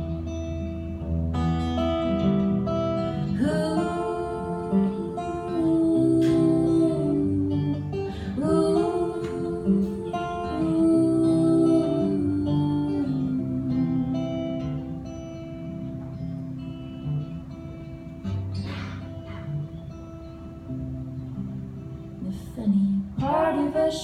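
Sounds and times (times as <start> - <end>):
strummed acoustic guitar: 0.0 - 24.0
wordless vocals: 3.0 - 15.1, 22.2 - 24.0.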